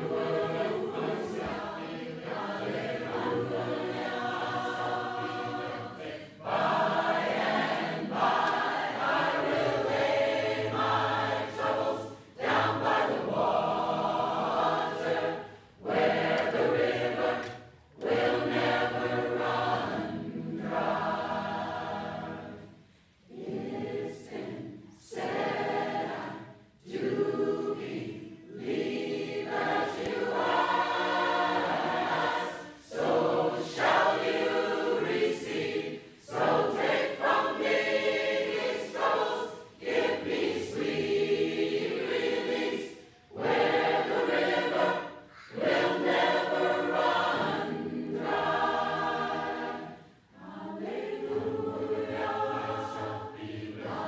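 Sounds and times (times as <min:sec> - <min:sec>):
mixed choir singing: 0:00.0 - 0:54.0.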